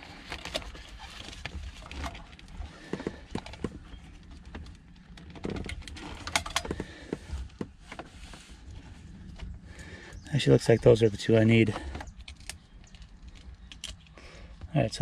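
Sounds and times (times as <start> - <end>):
plastic plugs clicking and rattling: 11.8 - 14.2.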